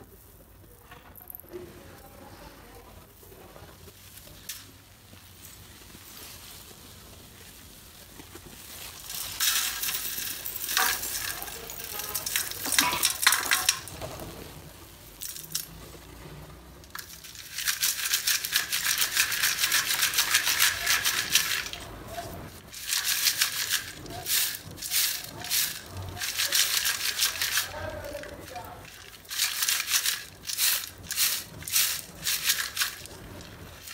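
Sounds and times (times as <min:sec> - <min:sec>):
shards rattling in metal sieve: 0:08.8 - 0:14.3, 0:16.8 - 0:33.9.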